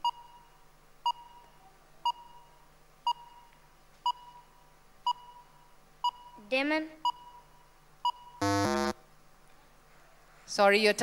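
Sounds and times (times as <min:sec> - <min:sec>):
short electronic timer beeps: 0:07.0 - 0:08.9.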